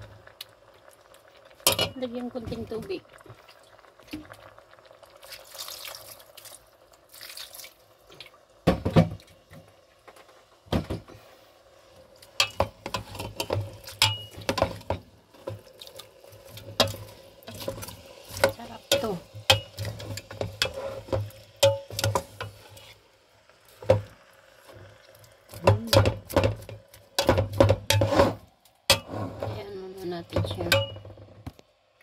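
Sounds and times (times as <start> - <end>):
water splashing into pot: 0.0 - 11.0, 12.2 - 29.1, 30.0 - 31.3
spoon stirring and knocking pot: 12.4 - 15.7, 16.6 - 22.6, 25.5 - 29.6, 30.2 - 31.3.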